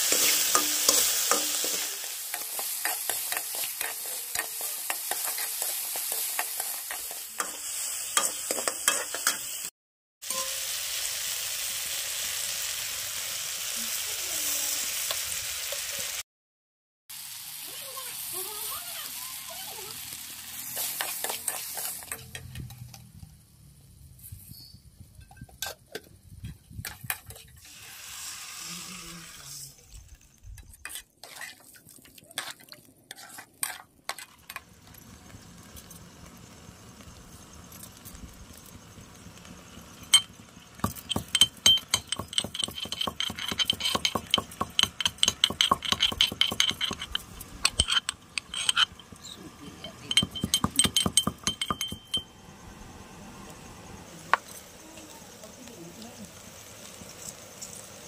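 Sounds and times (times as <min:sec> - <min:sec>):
metal ladle scraping pan: 0:00.0 - 0:09.6, 0:10.2 - 0:10.7, 0:20.6 - 0:23.0, 0:30.8 - 0:34.6, 0:40.1 - 0:49.2
metal pestle pounding in mortar: 0:40.8 - 0:48.0, 0:50.0 - 0:52.2.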